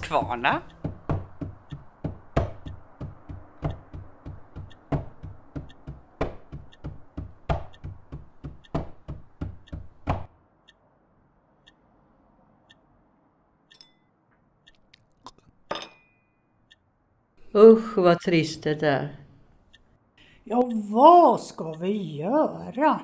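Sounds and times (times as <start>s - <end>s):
rhythmic knocking and tapping: 0.0s - 10.3s
wall clock ticking: 0.0s - 13.9s, 14.5s - 15.0s, 16.6s - 23.0s.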